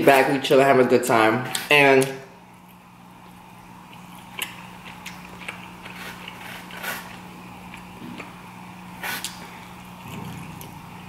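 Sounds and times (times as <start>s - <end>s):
steady low hum: 0.0s - 11.0s
person chewing: 2.6s - 11.0s.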